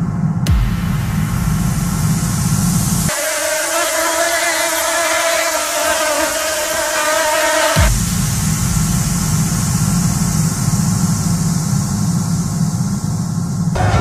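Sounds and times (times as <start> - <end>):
deep rumble: 0.0 - 3.1, 7.8 - 14.0
low boom: 0.0 - 3.1, 7.8 - 14.0
pitched drone with overtones: 0.0 - 14.0
sharp hit: 0.5 - 3.4, 7.8 - 14.0.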